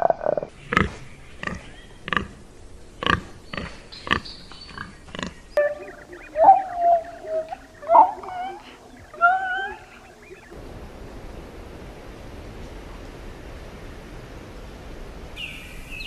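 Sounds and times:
high wavering animal calls: 0:05.6 - 0:10.6.

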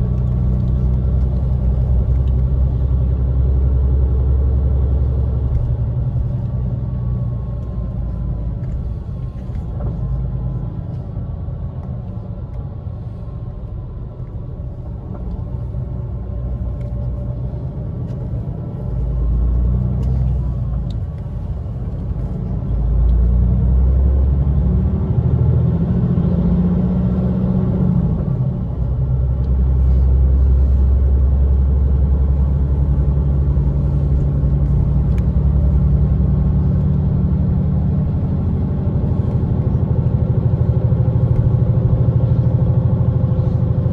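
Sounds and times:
vehicle rumble from inside cabin: 0:00.0 - 0:43.9.

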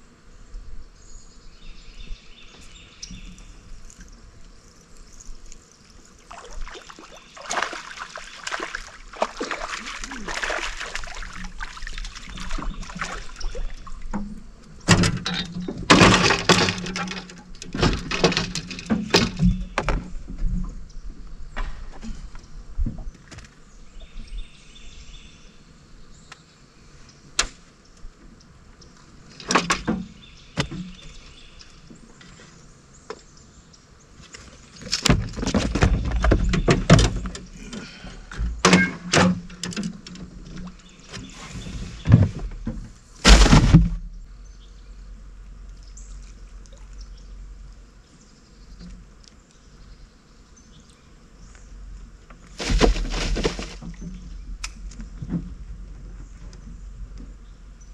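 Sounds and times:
rattling and scraping: 0:14.9 - 0:20.6, 0:34.8 - 0:44.0, 0:52.4 - 0:54.4
heavy thump: 0:42.0 - 0:44.1.

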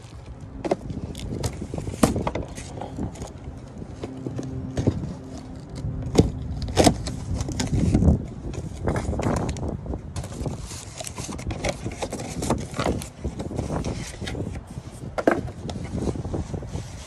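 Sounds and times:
cardboard box being opened: 0:10.2 - 0:14.6.

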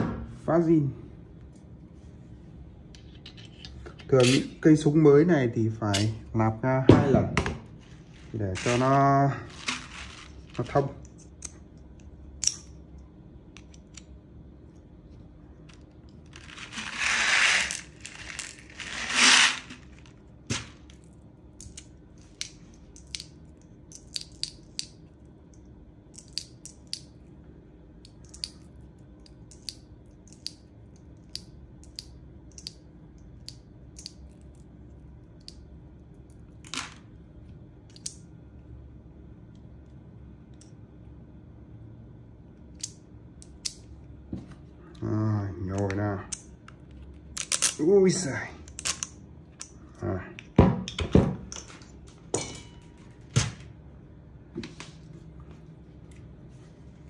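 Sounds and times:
light clicks of small parts: 0:28.0 - 0:34.6, 0:35.4 - 0:35.6.

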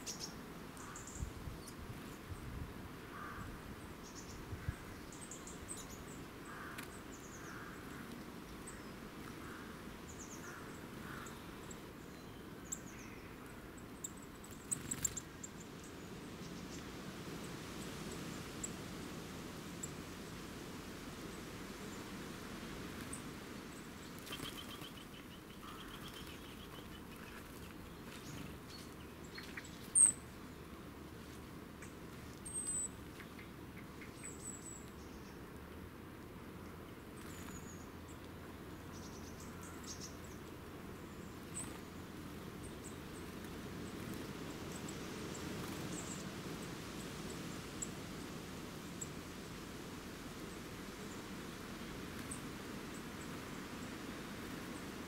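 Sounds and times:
low background hiss: 0:00.0 - 0:55.0
birds chirping: 0:24.1 - 0:30.2.

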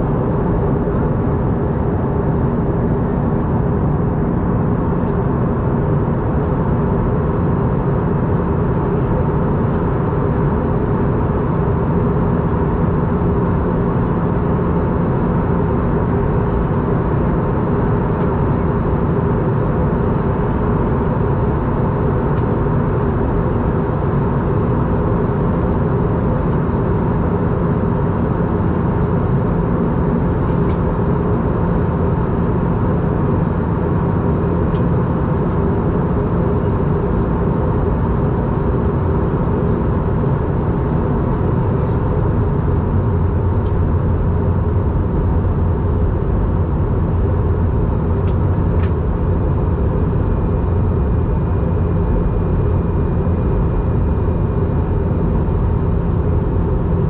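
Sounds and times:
airplane cabin airflow and engine hum: 0:00.0 - 0:57.0.

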